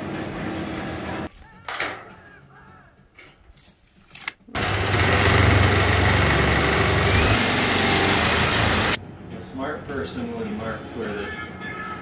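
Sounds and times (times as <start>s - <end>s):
drill cutting sheet metal: 4.6s - 9.0s.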